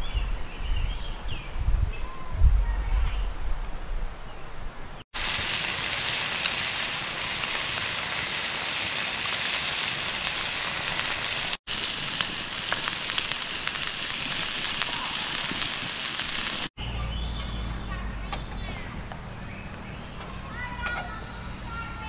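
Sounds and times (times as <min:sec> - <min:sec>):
steaks sizzling in skillet: 0:05.2 - 0:16.7.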